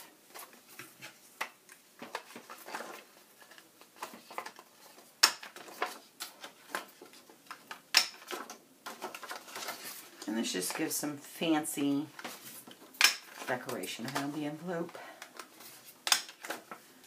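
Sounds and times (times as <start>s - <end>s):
paper rustling: 2.0s - 11.0s, 11.8s - 14.4s, 15.3s - 17.0s.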